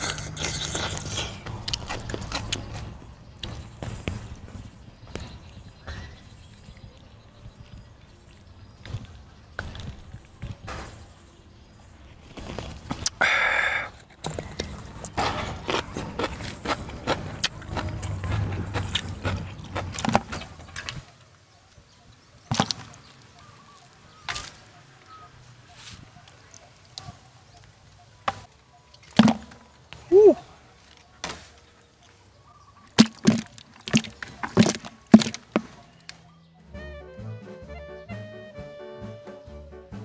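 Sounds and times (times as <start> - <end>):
close handling and eating noise: 0.0 - 4.5, 12.0 - 21.9, 22.5 - 36.2
plastic traps knocking against bucket: 33.0 - 35.8.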